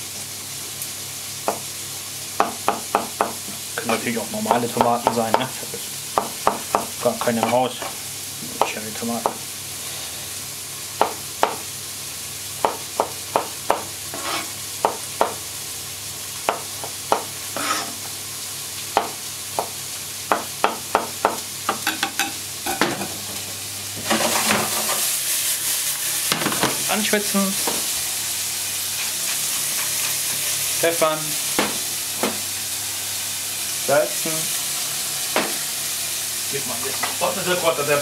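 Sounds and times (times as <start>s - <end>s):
vegetables sizzling in pan: 0.0s - 38.0s
knife tapping on cutting board: 6.2s - 7.9s, 8.6s - 9.4s, 11.0s - 11.6s, 16.5s - 17.3s, 20.3s - 22.3s, 31.6s - 32.4s, 35.3s - 35.6s.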